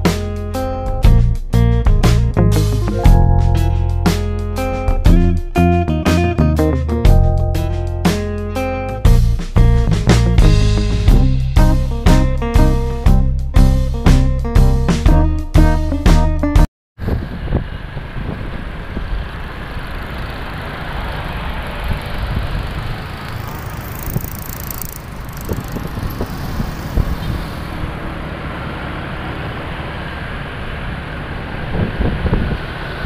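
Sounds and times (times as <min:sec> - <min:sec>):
wind on microphone: 0:17.0 - 0:19.3, 0:25.3 - 0:27.9, 0:31.7 - 0:32.7
street traffic rumble: 0:17.0 - 0:33.0.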